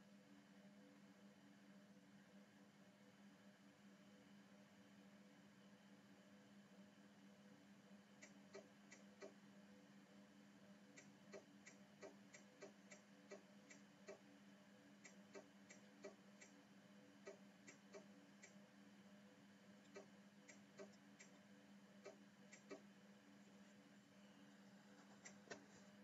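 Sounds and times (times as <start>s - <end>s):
low steady hum: 0.0s - 26.0s
faint small clicks: 24.9s - 26.0s.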